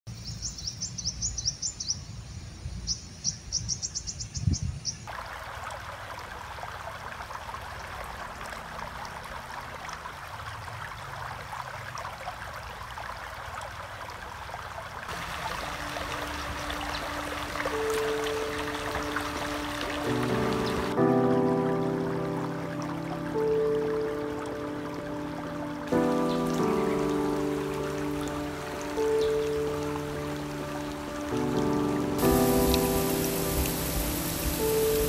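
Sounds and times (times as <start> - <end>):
small birds chirping: 0.1 - 5.1, 15.6 - 21.0, 26.0 - 31.7
stream running over rocks: 5.0 - 35.0.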